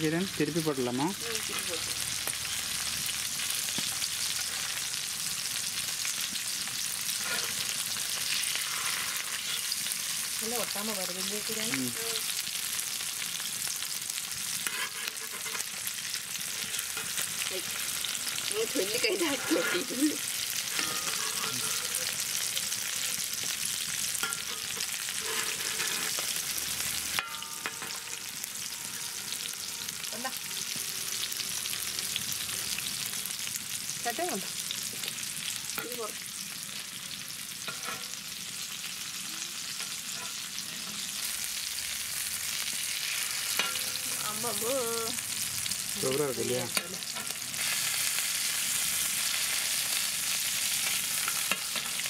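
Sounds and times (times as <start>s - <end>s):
fish sizzling in oil: 0.0s - 52.0s
metal spatula scrapes and clicks: 14.6s - 15.8s, 20.7s - 22.0s.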